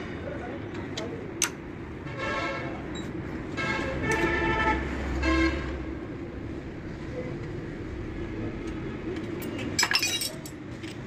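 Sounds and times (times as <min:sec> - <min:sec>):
low traffic rumble: 0:00.0 - 0:11.0
vehicle horns honking: 0:03.5 - 0:05.8
wrench clinking on metal: 0:09.8 - 0:11.0.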